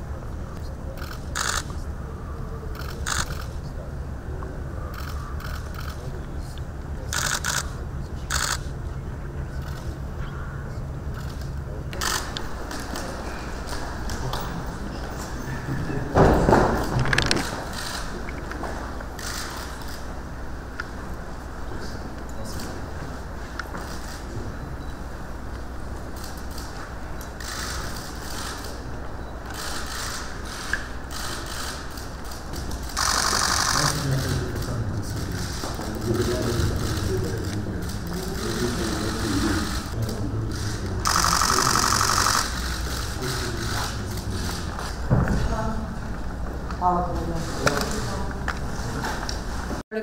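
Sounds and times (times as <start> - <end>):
camera shutters clicking: 1.0 - 1.8, 2.8 - 3.5, 7.1 - 7.7, 8.3 - 8.7, 11.2 - 13.1, 19.2 - 20.0, 29.5 - 44.9.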